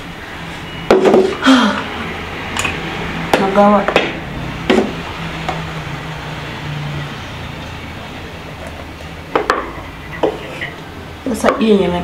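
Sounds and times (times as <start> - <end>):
cooking pot knocking: 9.3 - 10.4.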